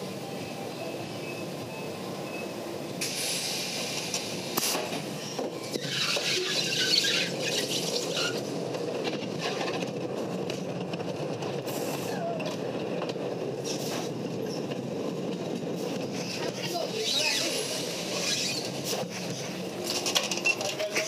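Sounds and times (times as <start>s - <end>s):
roller coaster on track: 0.0s - 21.0s
roller coaster squeal: 5.2s - 8.6s, 16.2s - 19.4s.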